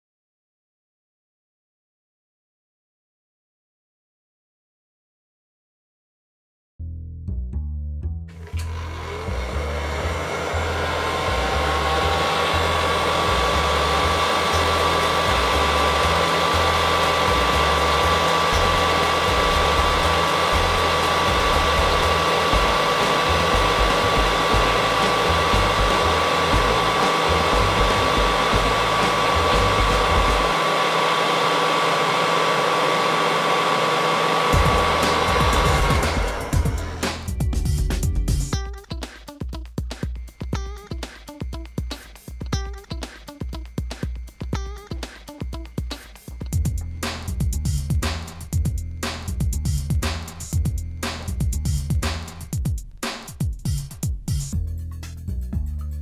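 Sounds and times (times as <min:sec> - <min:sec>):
heat gun blowing with fan whine: 0:08.4 - 0:37.4.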